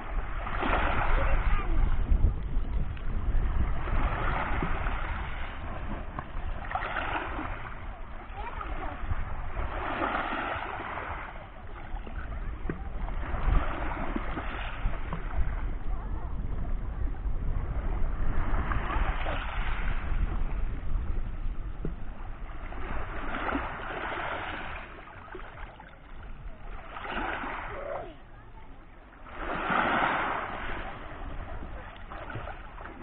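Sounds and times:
waves washing on pebble beach: 0.0s - 1.8s, 3.1s - 12.3s, 13.1s - 15.1s, 18.4s - 20.2s, 22.7s - 25.5s, 26.7s - 27.9s, 29.2s - 33.0s.

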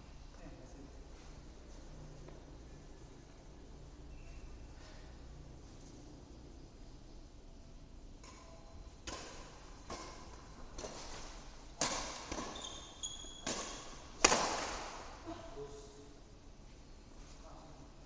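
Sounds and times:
rackets hitting shuttlecock: 8.2s - 15.2s
shoes squeaking on floor: 12.3s - 13.9s.

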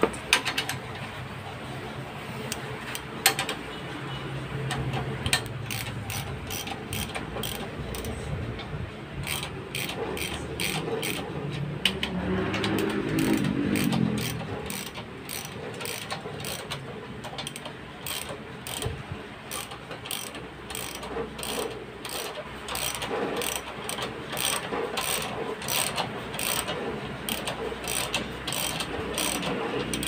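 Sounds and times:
ratchet wrench clicking: 5.2s - 8.2s, 9.2s - 11.2s, 11.8s - 30.0s.

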